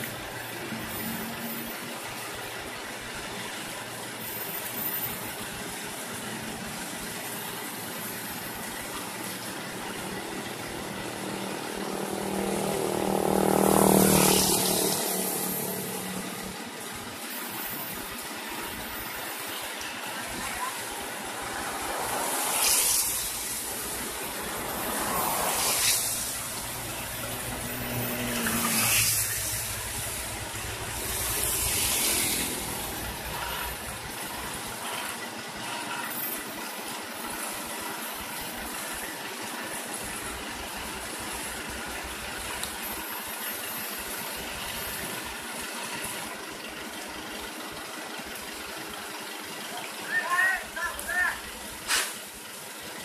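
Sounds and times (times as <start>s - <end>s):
paver and truck engines running: 0.0s - 53.0s
loud hissing bursts: 20.3s - 34.8s, 51.0s - 52.4s.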